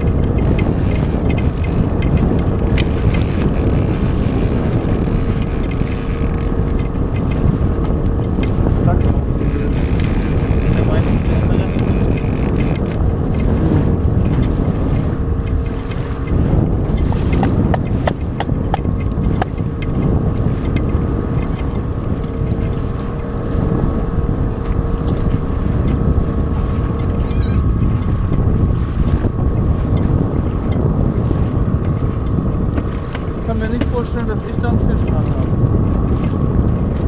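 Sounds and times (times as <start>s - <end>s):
outboard motor running: 0.0s - 37.0s
wind buffeting microphone: 0.0s - 37.0s
sharp clicks: 9.4s - 13.0s.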